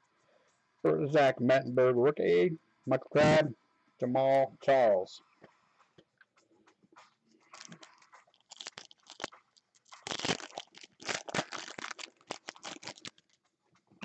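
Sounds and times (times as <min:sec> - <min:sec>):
foil wrapper crinkling and tearing: 0:07.5 - 0:13.4.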